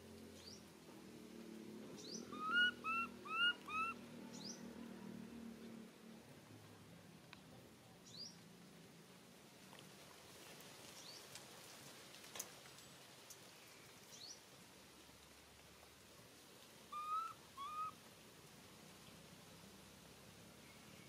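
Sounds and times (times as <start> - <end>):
baby monkey squeaky calls: 2.1 - 4.0, 16.9 - 18.0.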